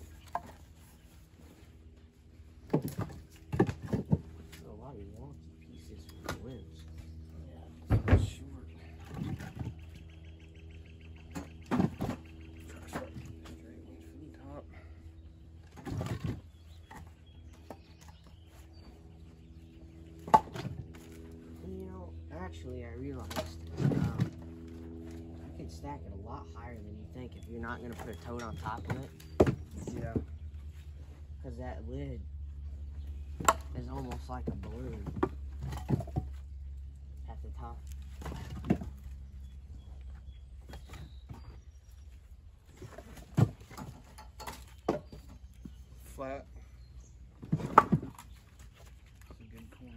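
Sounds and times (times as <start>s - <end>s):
firewood knocking and clattering: 0.0s - 0.9s, 2.6s - 4.6s, 11.3s - 13.6s, 20.1s - 21.4s, 23.1s - 25.3s, 27.7s - 30.3s, 33.3s - 36.5s, 37.8s - 39.2s, 42.8s - 45.8s
steady low hum: 0.0s - 49.9s.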